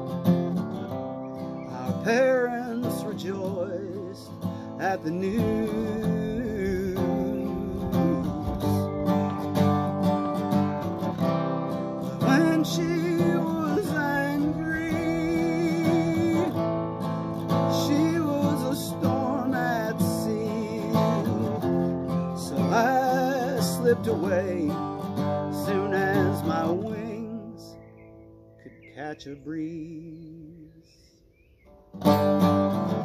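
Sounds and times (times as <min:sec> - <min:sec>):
acoustic guitar strummed: 0:00.0 - 0:33.0
man singing: 0:01.6 - 0:09.5, 0:12.0 - 0:27.9, 0:28.6 - 0:31.0.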